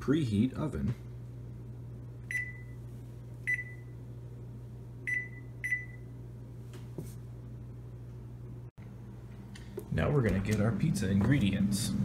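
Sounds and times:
steady low hum: 0.0s - 12.0s
oven control panel beeps: 2.3s - 2.8s, 3.5s - 4.0s, 5.0s - 6.1s.

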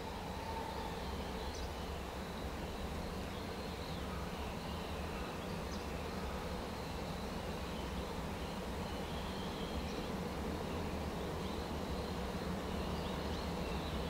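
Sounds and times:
faint insect chirring: 0.0s - 14.0s.

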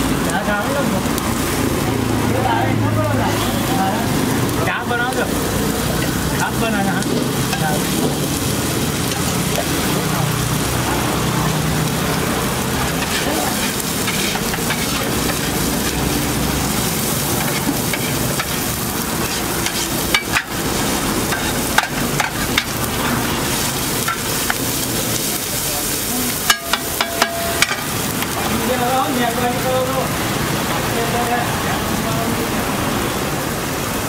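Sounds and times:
vegetables sizzling in hot oil: 0.0s - 34.0s
metal spatula scraping griddle: 12.7s - 28.0s.

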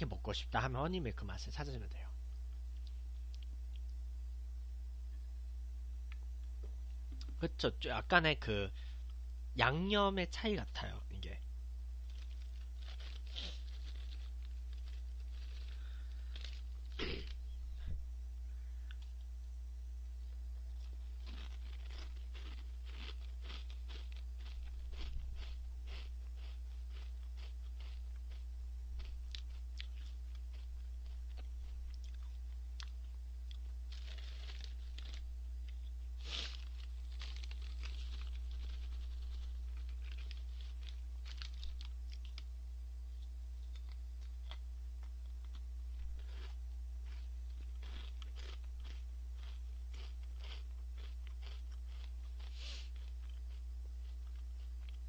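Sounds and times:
steady low hum: 0.0s - 55.0s
crackers crunching: 10.6s - 17.6s, 20.2s - 55.0s.

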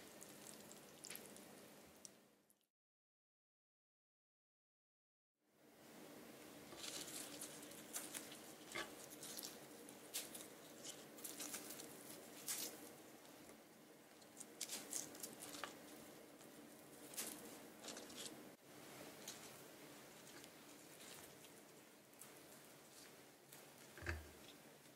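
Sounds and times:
low room hum: 0.0s - 2.6s, 5.5s - 24.9s
leaves rustling and crinkling: 6.6s - 13.5s, 14.1s - 24.9s.

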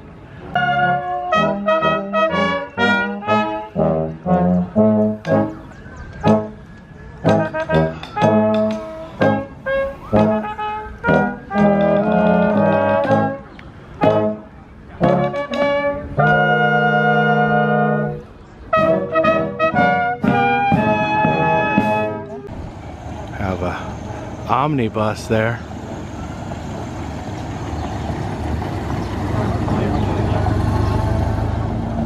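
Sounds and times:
brass band playing: 0.5s - 22.7s.

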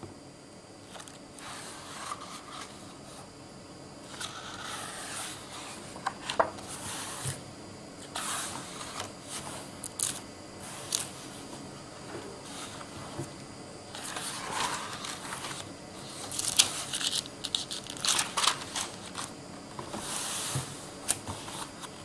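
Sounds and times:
album pages rustling: 14.0s - 20.0s.

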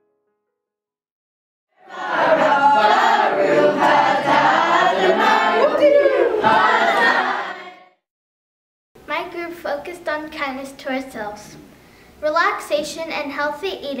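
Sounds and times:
children singing together: 1.8s - 7.9s.

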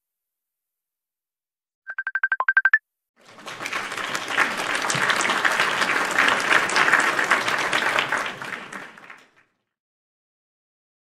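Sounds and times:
crowd applauding: 3.2s - 9.6s.

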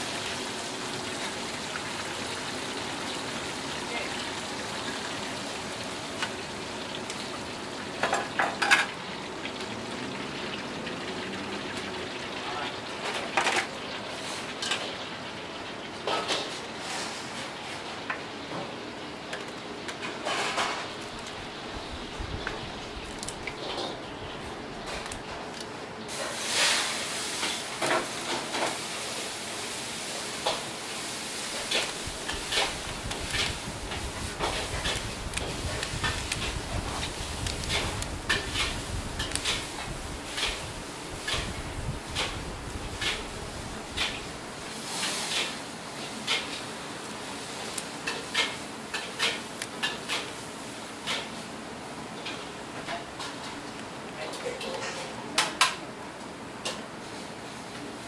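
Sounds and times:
deep-frying sizzle: 0.0s - 58.0s
steady hiss: 26.1s - 52.6s.

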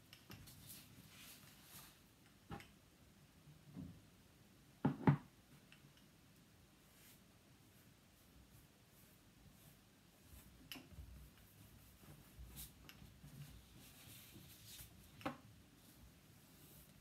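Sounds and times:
paintbrush on paper: 6.8s - 15.2s, 15.8s - 17.0s.

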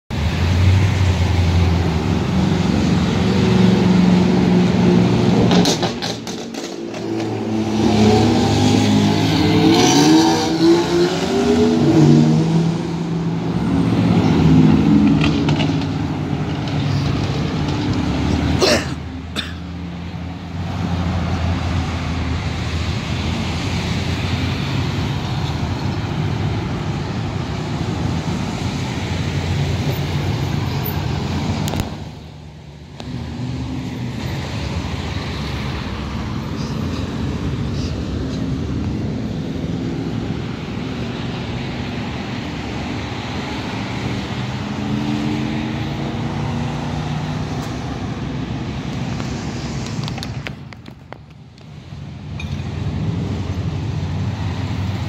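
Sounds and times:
car engines idling and pulling away: 0.1s - 55.0s
engine revving: 0.7s - 16.6s.

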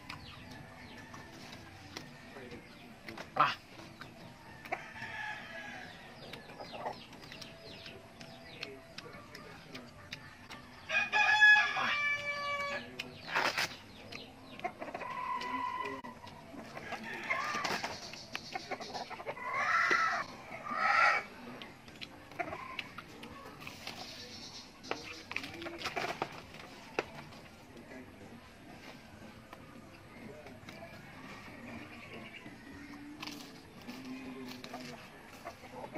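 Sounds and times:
chicken calls: 0.0s - 27.4s
rooster crowing: 10.9s - 12.8s.

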